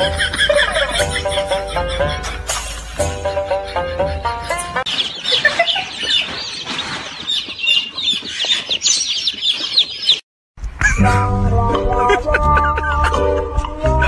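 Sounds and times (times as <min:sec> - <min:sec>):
baby chicks peeping: 0:03.3 - 0:10.2.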